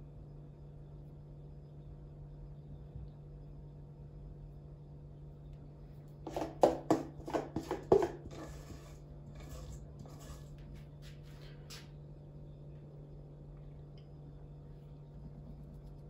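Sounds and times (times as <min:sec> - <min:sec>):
low hum: 0:08.5 - 0:16.0.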